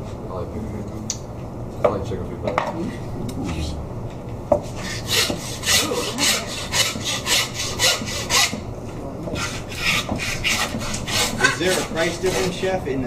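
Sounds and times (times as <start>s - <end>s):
meat saw cutting through bone: 4.8s - 8.6s, 9.4s - 12.6s.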